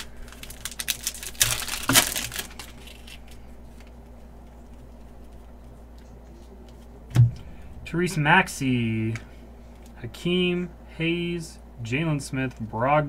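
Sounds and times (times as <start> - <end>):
wrapper tearing and crinkling: 0.0 - 3.9
faint steady hum: 0.0 - 13.0.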